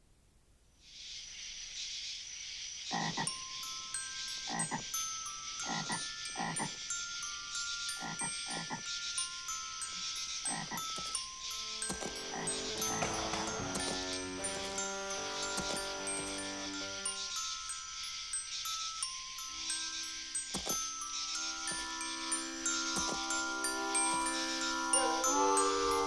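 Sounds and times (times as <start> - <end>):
steady high hiss: 0.0 - 26.0
frog croaking: 2.9 - 3.8, 4.4 - 26.0
music: 11.0 - 26.0.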